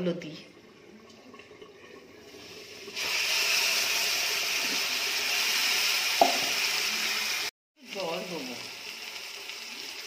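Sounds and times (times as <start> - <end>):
hot oil bubbling: 1.0 - 10.0
oil sizzling loudly: 2.1 - 10.0.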